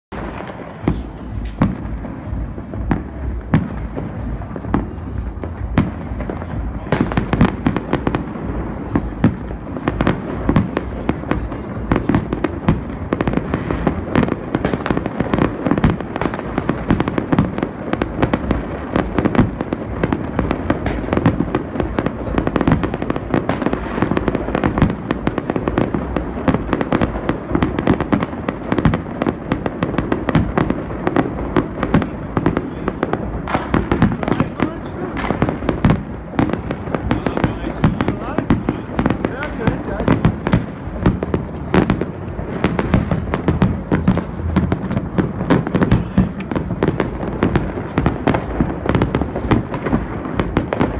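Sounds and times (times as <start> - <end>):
fireworks and firecrackers banging: 0.1 - 50.9.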